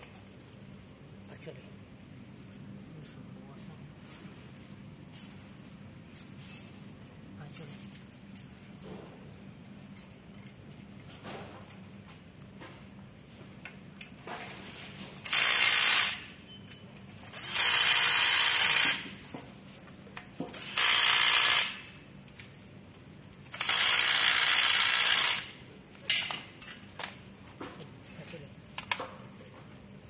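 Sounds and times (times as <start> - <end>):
cordless drill running: 15.2 - 16.2, 17.4 - 19.0, 20.6 - 21.8, 23.5 - 25.5.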